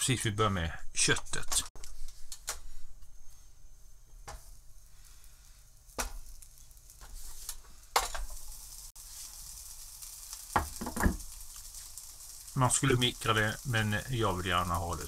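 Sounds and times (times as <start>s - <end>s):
patties sizzling on a grill: 4.1s - 15.0s
patties knocking on grill plate: 10.6s - 11.2s.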